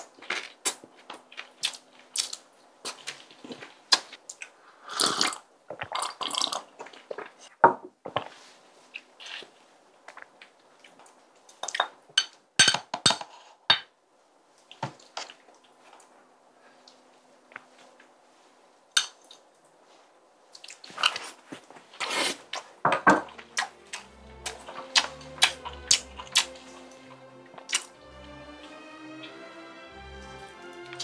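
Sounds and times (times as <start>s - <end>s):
wet eating sounds: 20.5s - 31.0s.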